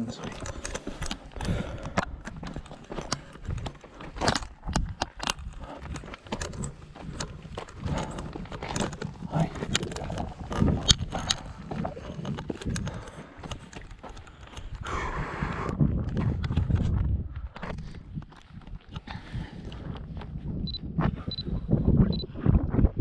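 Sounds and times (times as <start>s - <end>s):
footsteps on gravel: 0.0s - 14.5s.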